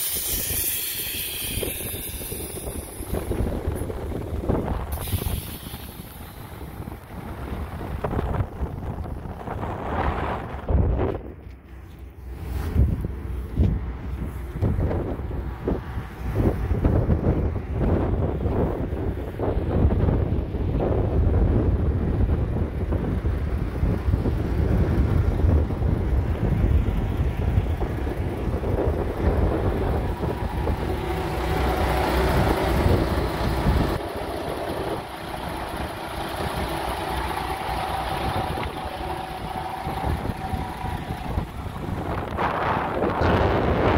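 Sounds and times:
truck engine idling: 0.0 - 43.9
wind buffeting microphone: 0.0 - 43.9.

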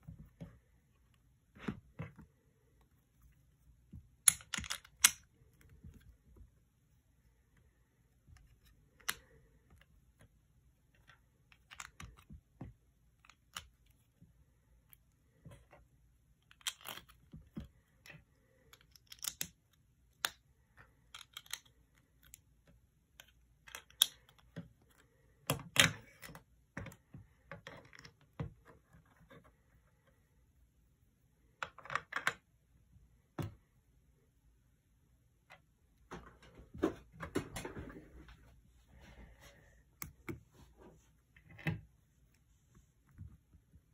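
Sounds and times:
plastic bricks clicking together: 4.2 - 5.2.

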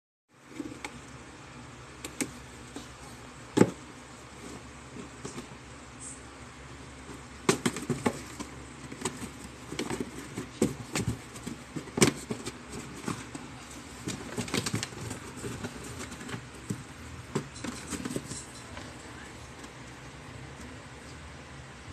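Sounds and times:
paws scratching cardboard box: 7.0 - 20.6.

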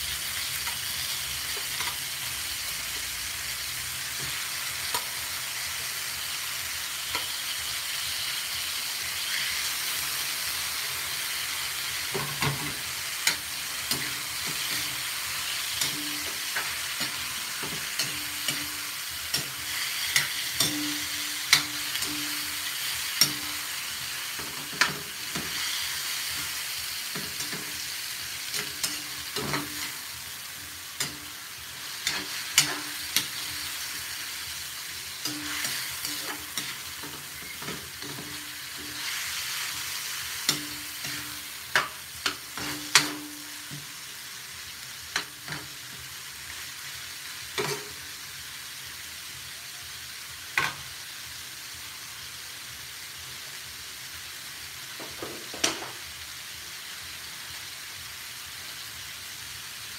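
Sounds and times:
food sizzling in a wok: 0.0 - 59.9
metal spoon scraping a wok: 35.2 - 39.5.

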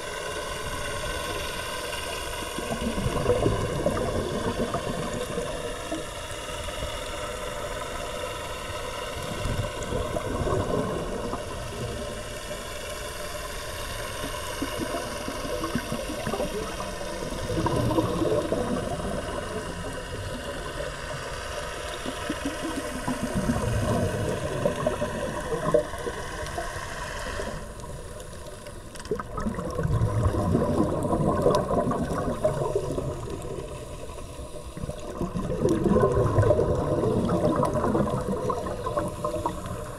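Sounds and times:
bubbles gurgling underwater: 0.0 - 6.3, 8.8 - 26.8, 27.4 - 39.9.

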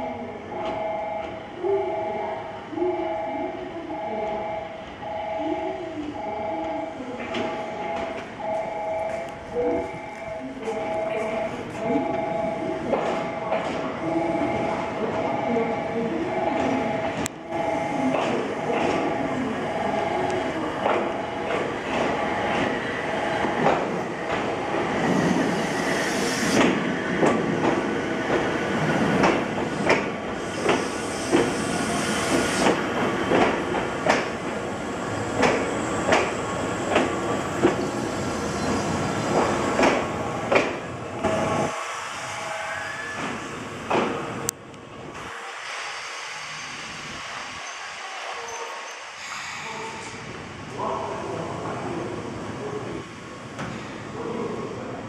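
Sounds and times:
train wheels clacking over rail joints: 29.1 - 31.6, 32.6 - 34.4, 35.4 - 37.9, 39.3 - 40.8.

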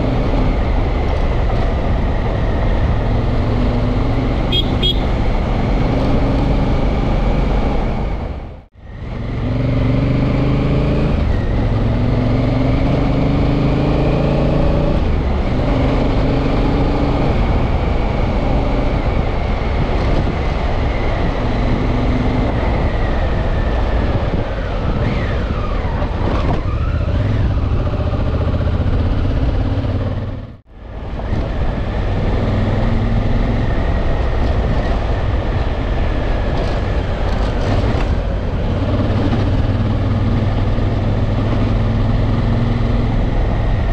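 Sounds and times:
motorcycle engine accelerating: 0.0 - 43.9
wind rush: 14.6 - 43.9.

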